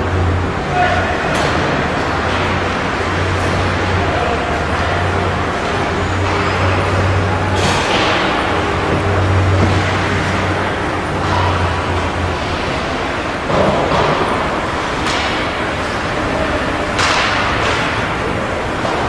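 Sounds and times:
hockey sticks and puck knocking: 13.5s - 15.6s, 16.9s - 18.1s.

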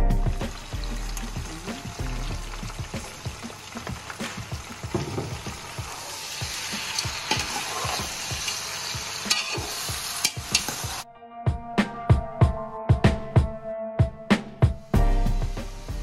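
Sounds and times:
prawns sizzling in a pot: 0.0s - 11.0s, 15.0s - 16.0s
music with a beat: 0.0s - 16.0s
metal utensil scraping a pot: 6.3s - 8.6s, 9.2s - 10.8s.

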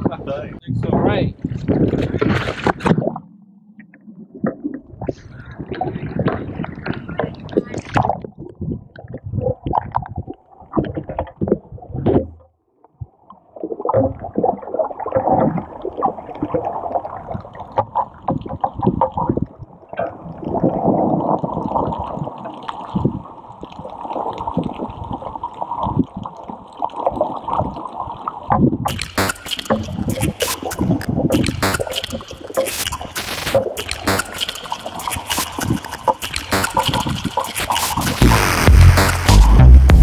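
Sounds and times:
underwater bubbling and gurgling: 0.0s - 38.4s
rush of water noise: 28.9s - 40.0s.

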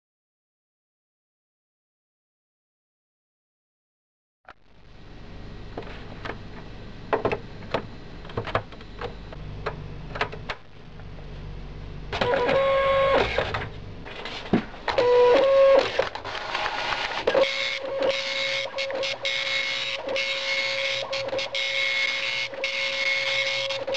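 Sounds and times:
low hum: 4.5s - 12.3s
dot matrix printer print head buzzing: 12.1s - 23.9s.

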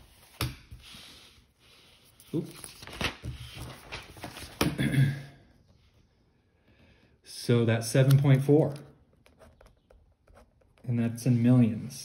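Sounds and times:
paper pages rustling: 2.0s - 4.8s.

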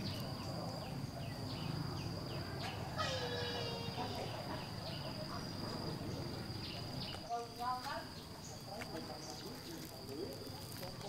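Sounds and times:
pitched animal call: 2.8s - 4.5s.

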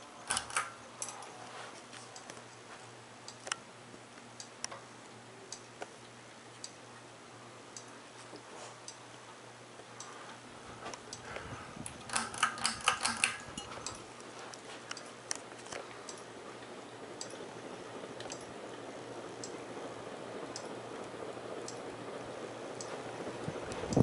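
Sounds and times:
ceiling fan motor humming: 0.0s - 24.0s
sharp clicks: 0.2s - 1.2s, 11.8s - 14.0s
rush of air from fan blades: 10.0s - 24.0s.

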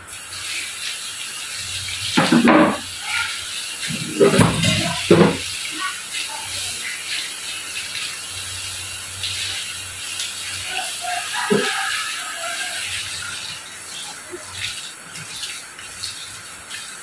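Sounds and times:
tap running into steel sink: 2.2s - 2.9s, 4.0s - 5.4s
water splashing over greens: 2.2s - 17.0s.

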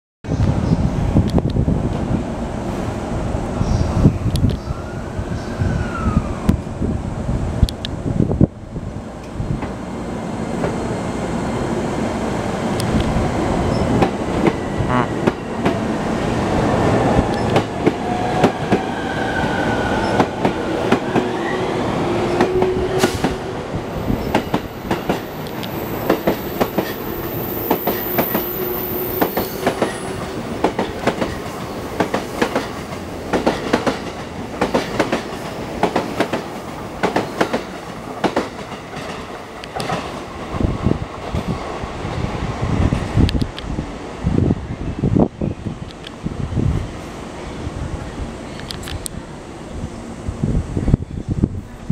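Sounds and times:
electric train running rumble: 0.4s - 51.9s
high train squeal: 3.6s - 6.8s, 13.6s - 15.6s, 17.0s - 30.6s.

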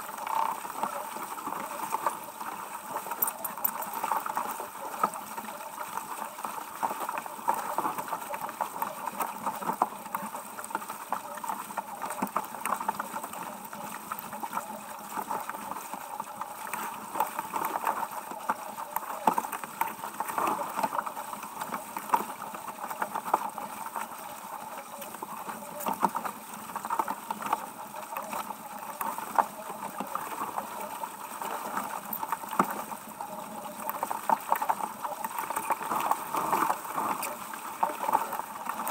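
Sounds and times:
water rushing along hull: 0.0s - 38.9s.

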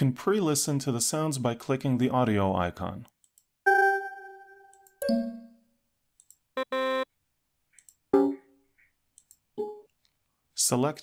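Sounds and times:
software alert chimes: 3.7s - 5.6s.

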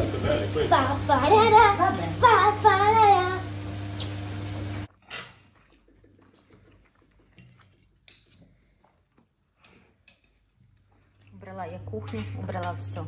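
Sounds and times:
clinks of dishes and cutlery: 5.0s - 5.4s.

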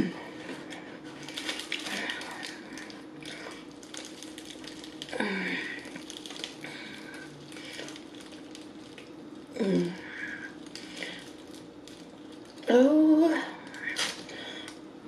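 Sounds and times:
fried chicken breading crackling: 3.7s - 9.1s.

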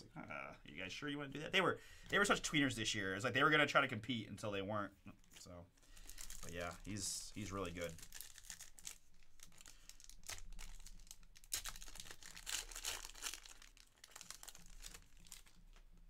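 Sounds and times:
foil wrapper crackling: 5.2s - 16.0s.

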